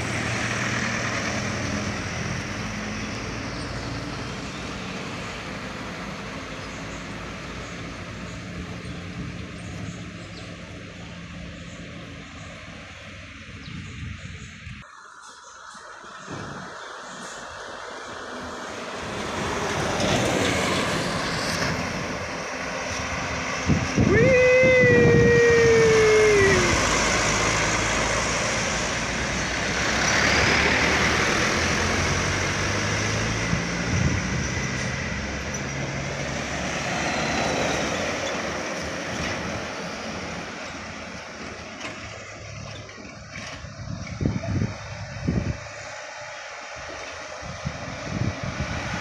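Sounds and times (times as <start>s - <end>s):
traffic passing close by: 0.0s - 49.0s
tyres on asphalt: 0.0s - 49.0s
loud tone sliding down in pitch: 24.0s - 28.3s.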